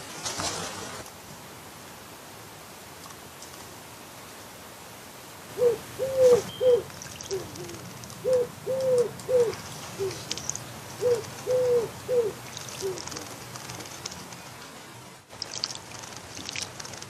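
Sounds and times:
wood pigeon cooing: 5.5s - 14.2s
bird splashing in bird bath: 6.8s - 14.4s, 15.3s - 17.0s.

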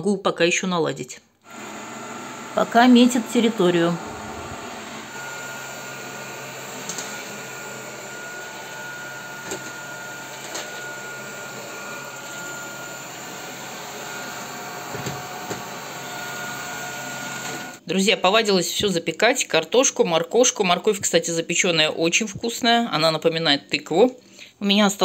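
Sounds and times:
robot vacuum humming: 1.5s - 17.8s.

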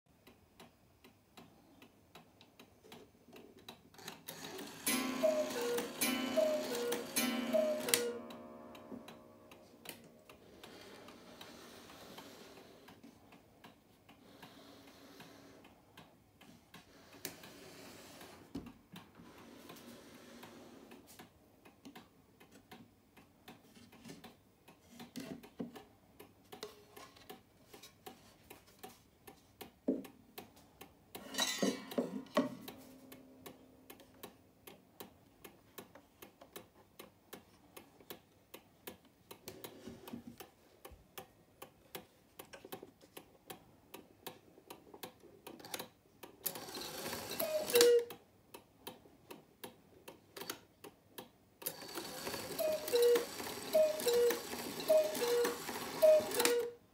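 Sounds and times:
clock ticking: 0.1s - 56.8s
clock strike train whirring: 4.6s - 9.2s
two-note cuckoo call: 4.9s - 9.6s, 47.4s - 48.1s, 52.6s - 56.8s.

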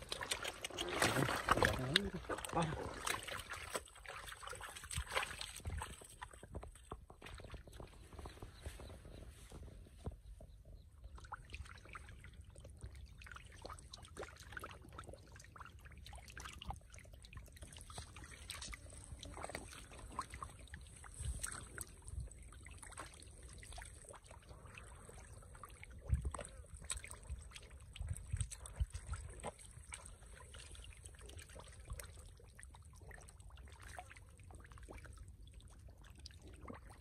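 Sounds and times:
water splashing and trickling: 0.0s - 37.0s
wind on microphone: 25.8s - 29.2s.

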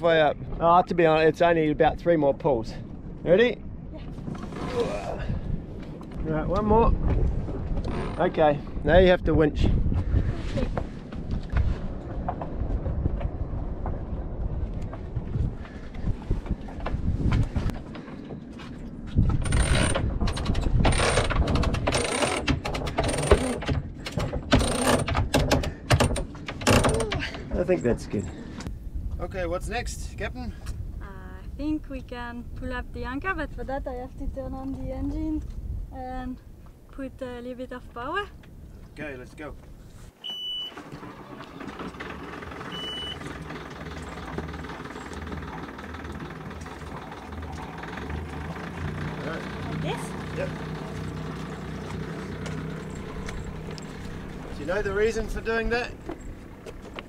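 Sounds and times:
short high beep: 40.2s - 40.8s, 42.7s - 43.2s
boat engine idling: 40.4s - 57.0s.

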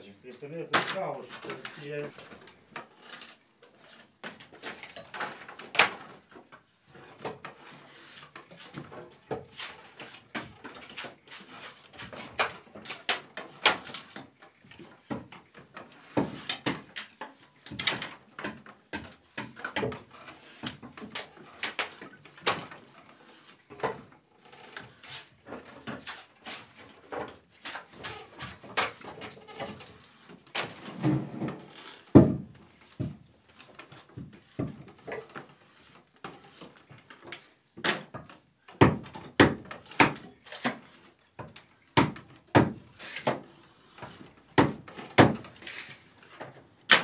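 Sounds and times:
draw knife scraping wood: 1.2s - 5.4s, 6.9s - 14.3s, 15.8s - 37.5s, 42.9s - 47.0s.

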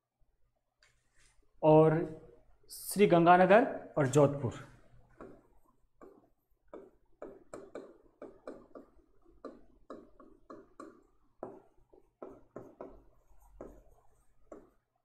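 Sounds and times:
pen scratching on board: 5.1s - 14.9s.

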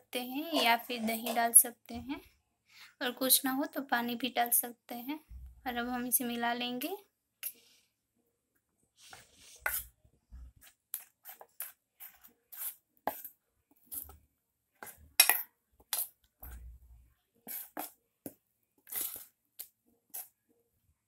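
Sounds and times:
metal spoon scraping a steel bowl: 0.5s - 1.6s, 9.4s - 9.9s.

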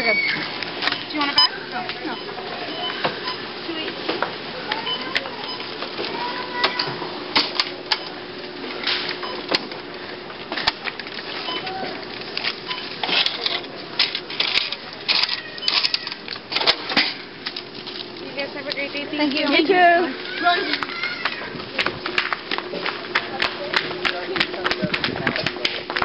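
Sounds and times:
cash register clattering: 12.4s - 17.3s.

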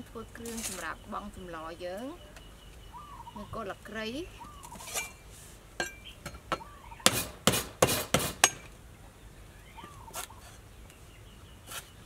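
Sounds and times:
cleaver chopping on wooden board: 6.5s - 8.6s.

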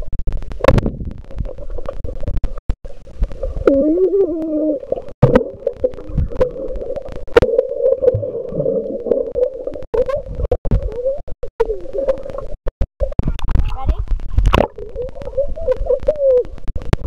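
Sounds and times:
bubbles: 0.6s - 13.6s, 14.3s - 17.0s
muffled voices underwater: 0.8s - 17.0s
underwater knocks: 5.2s - 6.6s.

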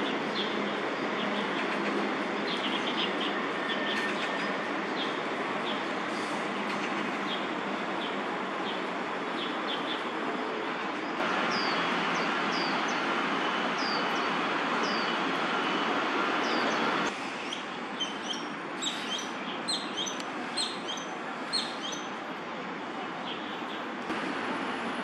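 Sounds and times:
city traffic hum: 0.0s - 25.0s
birds chirping: 6.7s - 22.2s.

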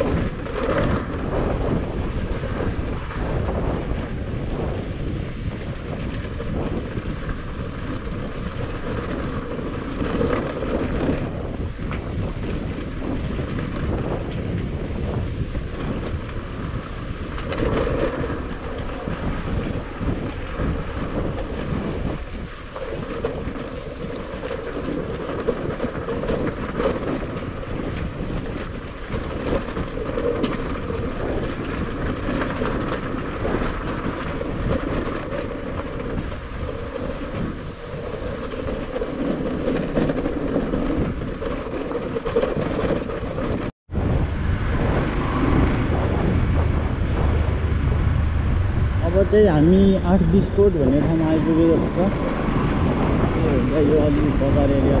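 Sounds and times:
wind on microphone: 0.0s - 55.0s
knocks and rattles: 22.9s - 27.6s, 38.3s - 43.7s
motorcycle engine: 39.7s - 55.0s.

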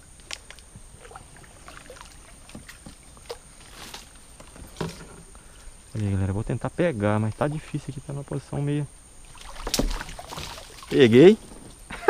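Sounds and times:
water knocks and swishes around kayak: 0.6s - 5.3s, 9.3s - 11.8s.

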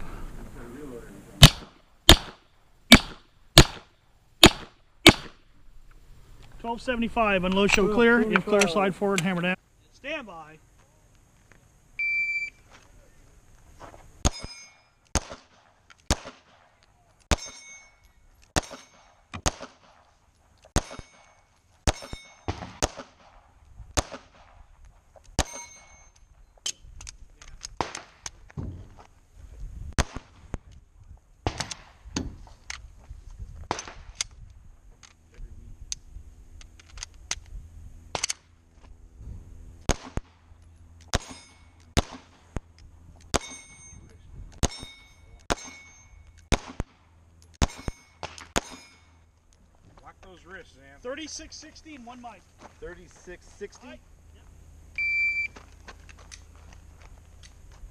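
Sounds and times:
pistol shots: 1.4s - 5.4s, 14.2s - 16.7s, 18.5s - 20.0s, 20.8s - 23.4s, 24.0s - 24.6s, 27.8s - 28.3s, 30.0s - 30.3s, 39.9s - 40.3s, 41.1s - 42.4s, 46.5s - 47.0s, 47.6s - 49.0s
metallic ding of steel target: 17.3s - 18.0s, 43.4s - 46.3s.

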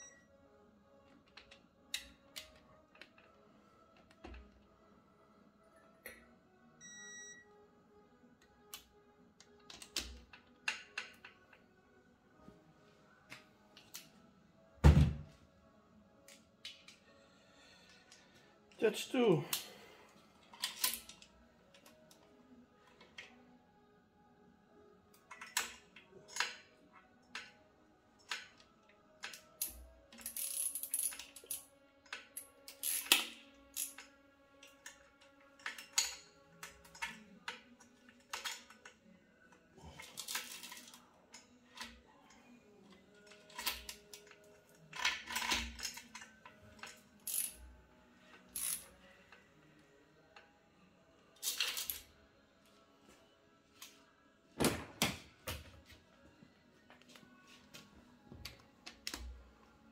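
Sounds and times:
metal tools and parts clinking: 20.5s - 21.3s, 35.6s - 37.6s, 39.9s - 42.0s, 43.2s - 47.7s, 51.4s - 52.1s.

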